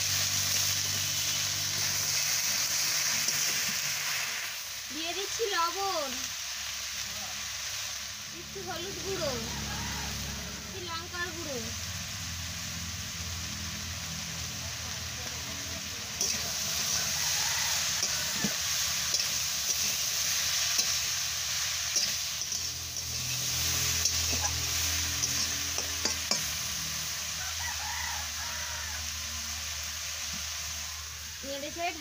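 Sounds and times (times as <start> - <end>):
frying sizzle: 0.0 - 32.0
spatula scraping in a metal pan: 0.2 - 4.4, 16.1 - 27.0.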